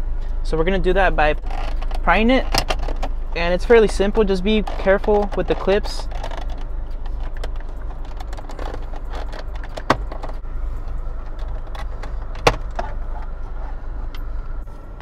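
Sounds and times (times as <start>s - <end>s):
steady low hum: 0.0s - 15.0s
plastic trim rattling and clicking: 1.4s - 13.4s.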